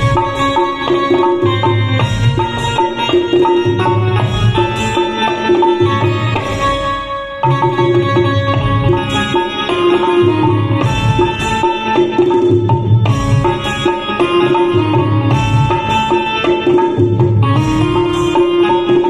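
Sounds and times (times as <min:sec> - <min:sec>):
electronic keyboard melody: 0:00.0 - 0:19.0
hand drum rhythm: 0:00.0 - 0:19.0.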